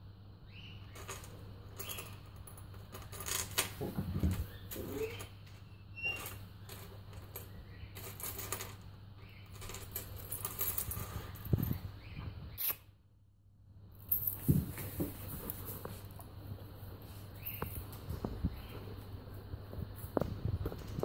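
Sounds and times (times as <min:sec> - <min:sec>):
metal chain links clinking: 0:00.9 - 0:03.8, 0:06.0 - 0:08.8, 0:09.4 - 0:11.8, 0:14.1 - 0:14.5
chain rings clacking on worktop: 0:00.9 - 0:05.3, 0:06.0 - 0:11.8, 0:14.1 - 0:15.2.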